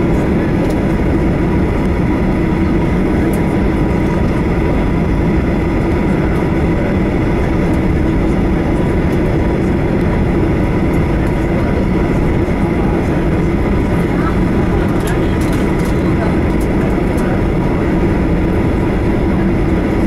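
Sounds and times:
jet engines running at low power: 0:00.0 - 0:20.0.

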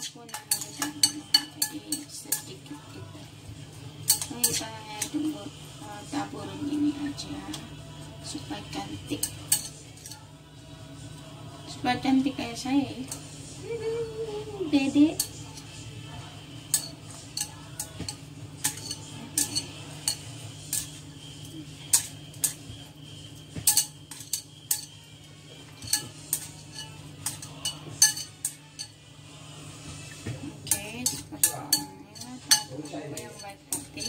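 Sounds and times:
chopsticks tapping on dishes: 0:00.0 - 0:03.1, 0:04.0 - 0:05.4, 0:08.8 - 0:10.3, 0:16.6 - 0:29.0, 0:30.0 - 0:34.0.

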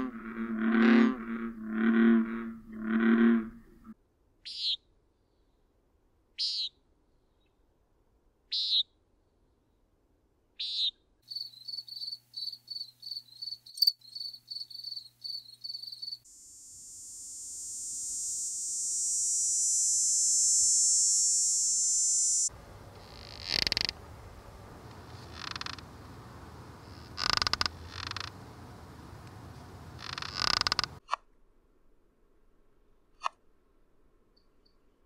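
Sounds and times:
cicada high buzz: 0:11.3 - 0:24.0, 0:24.8 - 0:31.0
cricket chirping: 0:11.3 - 0:24.0, 0:24.8 - 0:31.0
nighthawk nasal peent calls: 0:25.0 - 0:26.0, 0:26.8 - 0:28.4.

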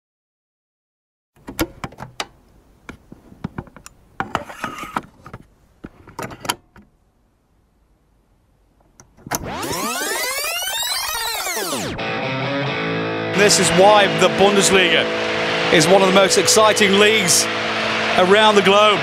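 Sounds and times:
sharp clicks and knocks: 0:01.4 - 0:06.9.

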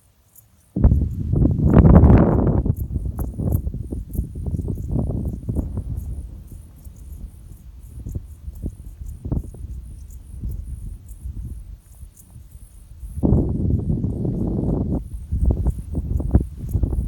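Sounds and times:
crickets chirping: 0:00.0 - 0:17.0
low rumble: 0:13.2 - 0:15.2.

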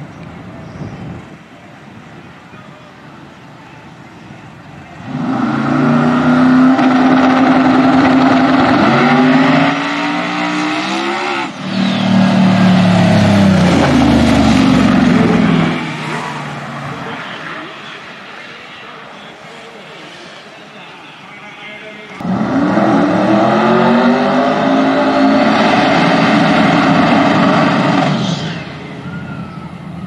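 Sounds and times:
drag car engine at full throttle: 0:04.8 - 0:18.7, 0:22.1 - 0:30.0.

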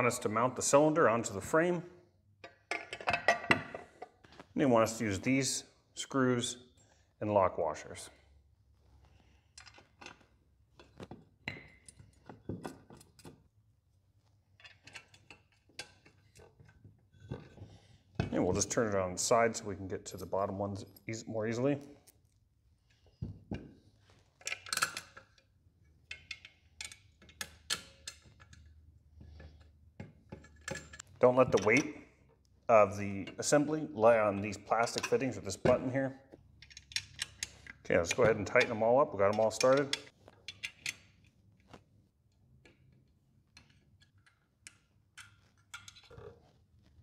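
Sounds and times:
metallic clicks of screws handled: 0:26.1 - 0:28.8, 0:36.6 - 0:37.8.

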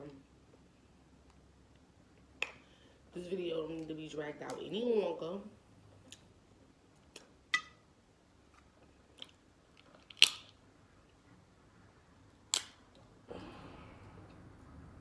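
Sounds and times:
shellfish shell cracking: 0:09.2 - 0:10.6.

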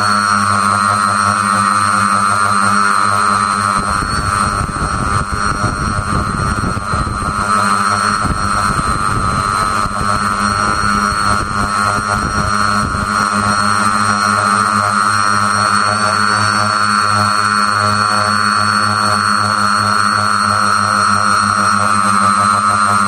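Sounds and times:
drone motors whining: 0:00.0 - 0:23.0
wind rumble on microphone: 0:03.6 - 0:13.9.

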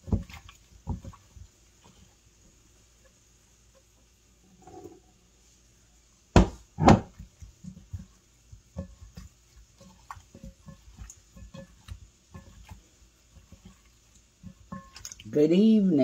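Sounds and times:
chicken wings squelching in a glass bowl: 0:00.0 - 0:04.0, 0:07.1 - 0:15.9.

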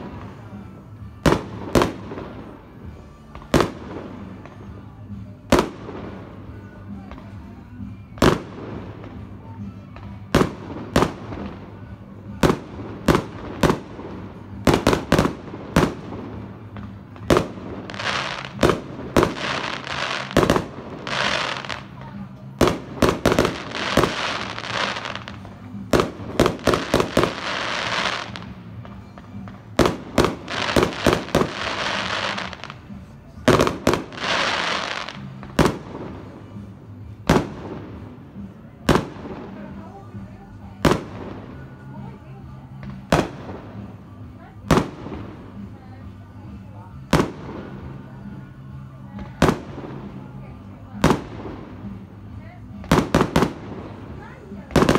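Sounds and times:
hissing crackle of fireworks: 0:00.0 - 0:54.9
fireworks bangs: 0:08.2 - 0:39.8.

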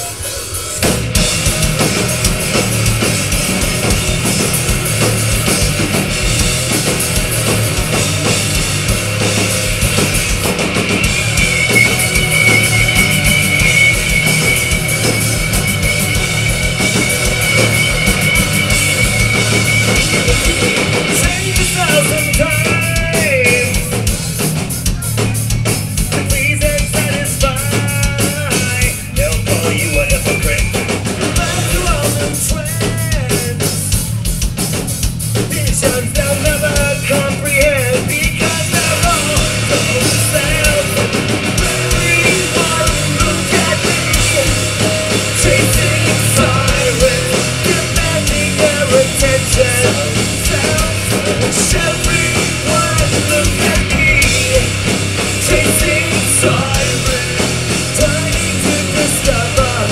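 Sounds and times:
drum-kit beat: 0:00.0 - 0:59.9
electric guitar: 0:00.0 - 0:59.9
rock band playing: 0:00.0 - 0:59.9
person singing: 0:35.5 - 0:59.9.

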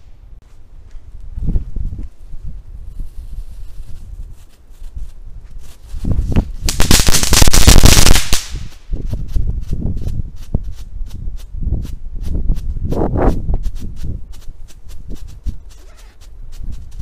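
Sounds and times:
firework crackling and popping: 0:04.8 - 0:12.0.

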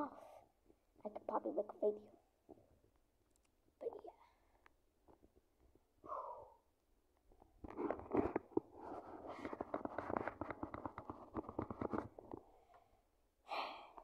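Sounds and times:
fabric rubbing against phone: 0:07.6 - 0:12.2.

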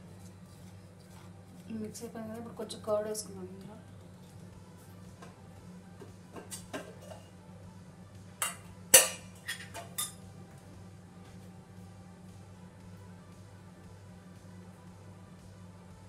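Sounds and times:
utensils clinking against dish: 0:06.4 - 0:07.3, 0:08.4 - 0:10.2.

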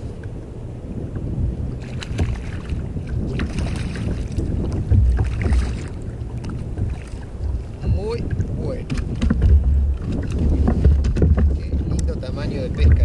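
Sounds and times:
wind rumbling on microphone: 0:00.0 - 0:13.0
water sloshing against kayak hull: 0:00.9 - 0:13.0
light knocks: 0:08.8 - 0:12.2.

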